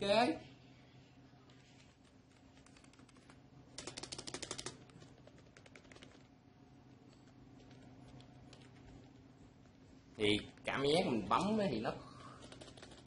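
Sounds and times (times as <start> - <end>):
keyboard keys clicking: 2.6 - 6.3, 12.4 - 13.0.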